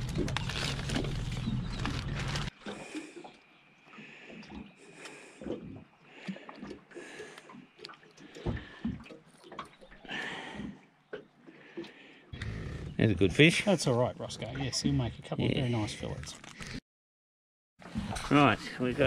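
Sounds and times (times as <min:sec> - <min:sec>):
plastic packets rustling: 0:00.0 - 0:02.5.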